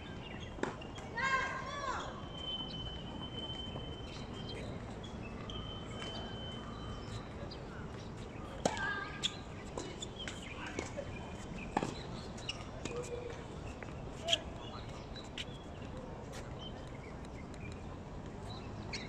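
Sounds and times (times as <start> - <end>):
faint distant voices: 0.2 - 19.0
bird chirps: 2.2 - 7.4.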